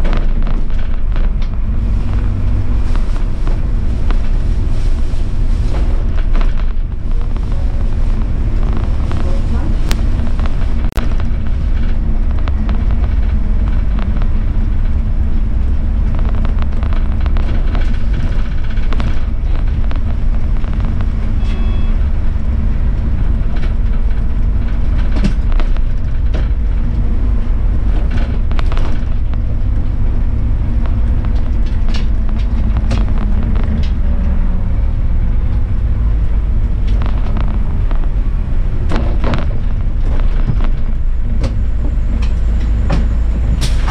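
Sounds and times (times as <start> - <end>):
bus engine and road rumble: 0.0 - 43.9
rattles and clicks: 0.0 - 43.9.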